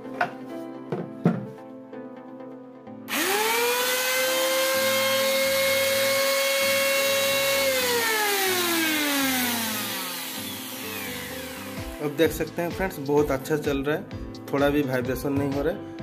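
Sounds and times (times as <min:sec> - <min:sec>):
angle grinder motor whine: 0:03.1 - 0:12.4.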